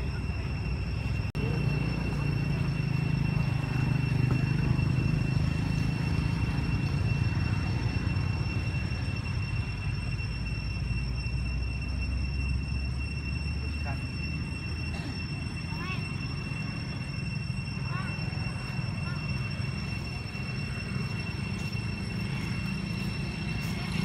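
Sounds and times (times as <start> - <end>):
high-pitched whine: 0.0 - 24.0.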